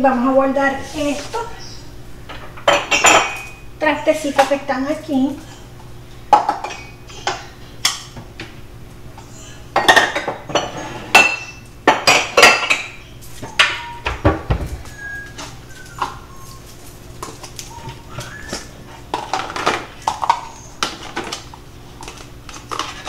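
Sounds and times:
dishes clinking and clattering: 0:02.3 - 0:03.6, 0:06.3 - 0:08.0, 0:09.8 - 0:14.7.

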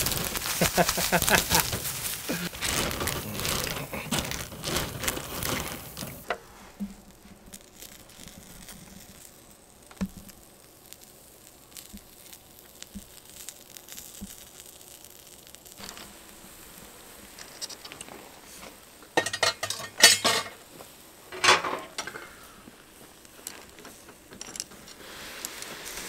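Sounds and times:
plastic bag crinkling: 0:00.0 - 0:06.3, 0:21.9 - 0:26.0
faint crackle of grilling: 0:00.0 - 0:26.0
shells clattering onto wire grill: 0:19.2 - 0:20.6, 0:21.3 - 0:22.4.

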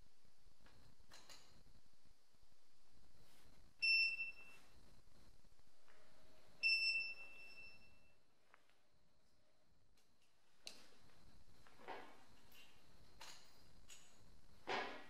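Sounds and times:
battery charger beeps: 0:03.8 - 0:04.6, 0:06.6 - 0:08.1.

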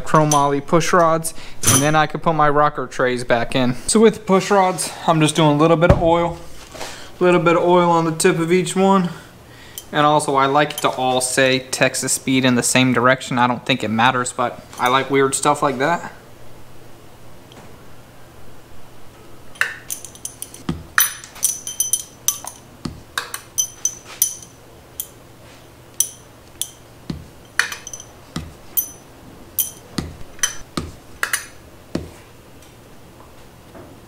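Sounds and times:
metal pushrods clinking: 0:19.6 - 0:25.2, 0:26.0 - 0:30.6.

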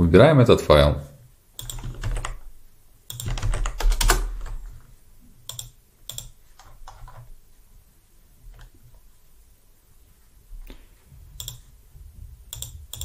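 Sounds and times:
key or mouse clicks: 0:01.6 - 0:02.4, 0:03.1 - 0:04.7, 0:05.5 - 0:07.3, 0:11.4 - 0:11.7, 0:12.5 - 0:13.0
typing on computer keyboard: 0:01.6 - 0:02.4, 0:03.1 - 0:04.7, 0:05.5 - 0:07.3, 0:11.4 - 0:11.7, 0:12.5 - 0:13.0.

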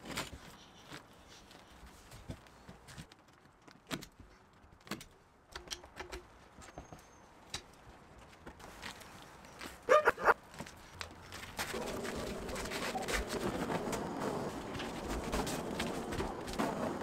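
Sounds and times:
hand tools clicking and tapping: 0:03.1 - 0:06.9.

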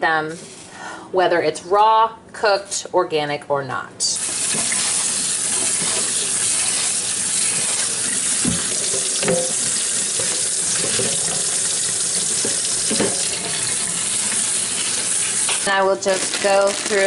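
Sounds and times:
sink sprayer spraying water: 0:04.1 - 0:17.0.

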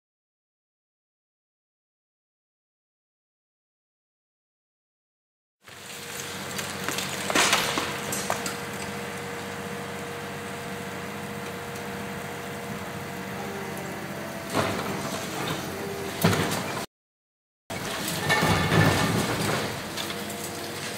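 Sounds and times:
concrete cracking and crashing: 0:05.7 - 0:09.1, 0:17.7 - 0:20.9
excavator engine and hydraulics: 0:05.7 - 0:16.9, 0:17.7 - 0:20.9.

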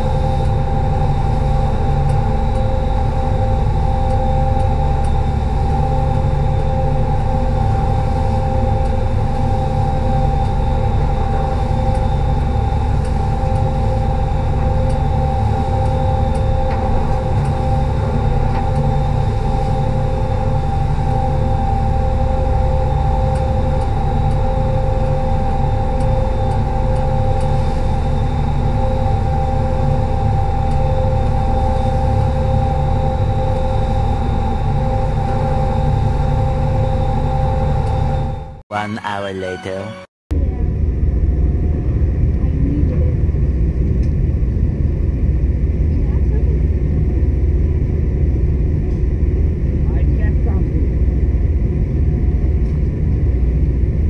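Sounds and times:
steady whine: 0:00.0 - 0:42.5.

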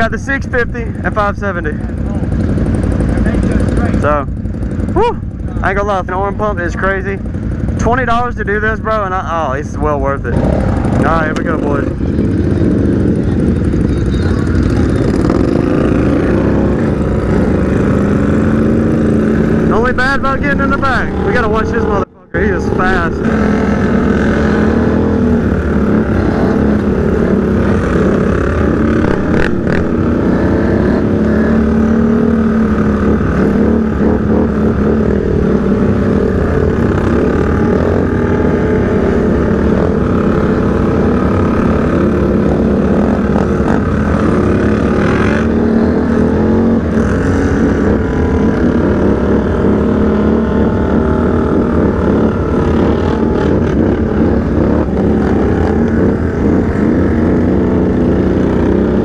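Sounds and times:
atv engine running hard: 0:00.0 - 0:59.0.

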